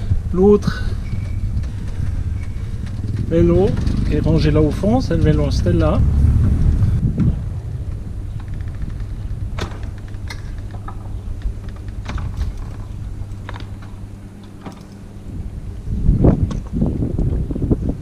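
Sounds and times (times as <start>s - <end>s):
low rumble: 0.0s - 18.0s
gear clicking and knocking: 1.0s - 5.8s, 7.8s - 15.1s.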